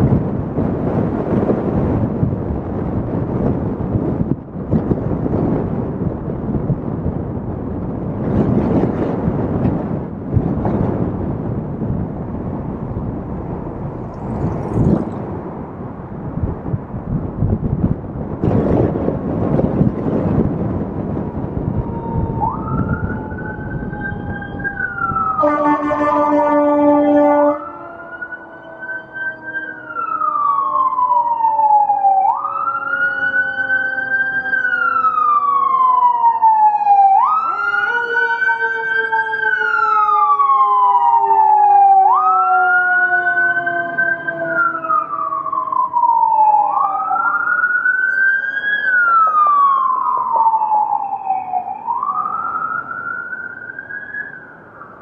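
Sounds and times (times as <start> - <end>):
siren wailing: 21.4 - 55.0
horn blast: 25.4 - 27.9.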